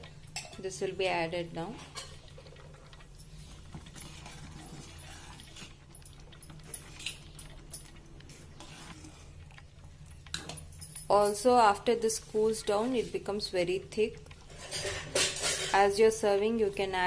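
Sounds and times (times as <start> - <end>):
ladle stirring in steel pan: 0.0 - 16.4
metal clinks: 10.4 - 11.5.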